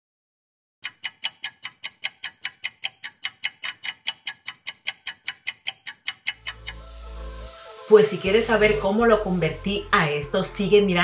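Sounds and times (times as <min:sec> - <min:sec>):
rapid sharp clicking: 0:00.8 - 0:06.8.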